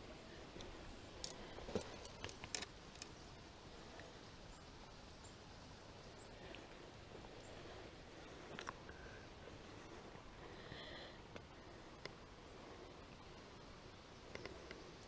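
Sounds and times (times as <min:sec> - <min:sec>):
faint background hiss: 0:00.0 - 0:15.0
hands handling fish and line: 0:00.5 - 0:03.2.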